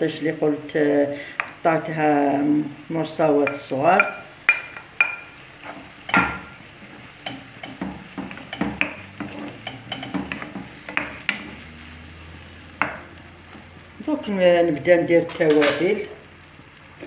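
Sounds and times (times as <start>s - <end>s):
food sizzling in a frying pan: 0.0s - 17.0s
spatula scraping a pan: 4.6s - 13.7s.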